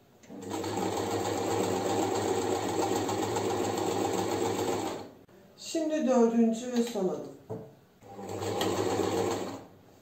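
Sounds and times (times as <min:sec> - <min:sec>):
sewing machine stitching: 0:00.3 - 0:05.1, 0:08.0 - 0:09.7.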